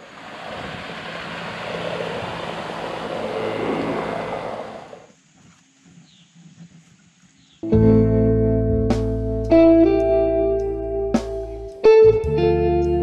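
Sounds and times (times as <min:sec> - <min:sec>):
motorboat engine passing: 0:00.0 - 0:05.1.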